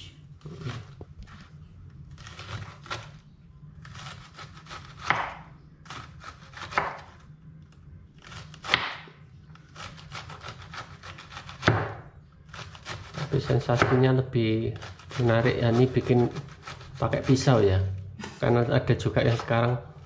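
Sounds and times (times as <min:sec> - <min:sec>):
knife slicing cabbage on board: 0:02.1 - 0:03.2, 0:03.8 - 0:07.2, 0:09.6 - 0:14.0, 0:14.8 - 0:17.6.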